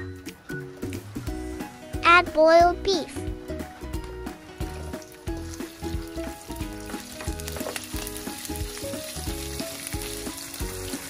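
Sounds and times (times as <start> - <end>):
background music with beat: 0.0 - 11.0
meat sizzling in oil: 4.0 - 11.0.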